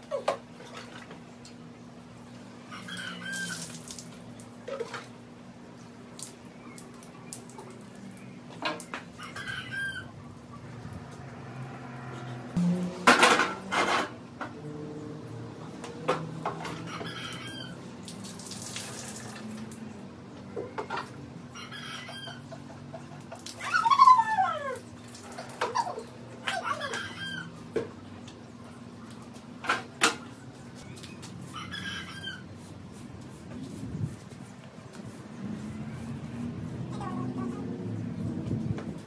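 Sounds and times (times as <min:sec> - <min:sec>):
water pouring onto plants: 0:03.3 - 0:04.3, 0:18.0 - 0:19.8
animal calls: 0:23.5 - 0:27.6.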